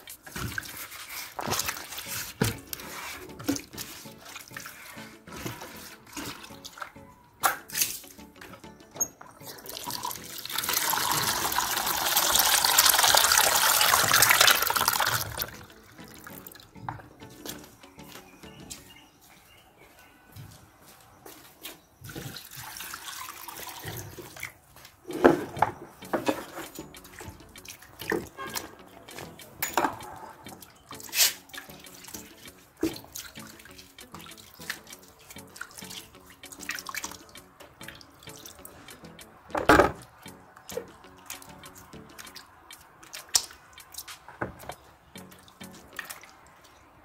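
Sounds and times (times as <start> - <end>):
water splashing in a bowl: 0.0 - 2.8, 9.4 - 16.6, 22.1 - 24.6, 26.7 - 39.0, 39.8 - 46.9.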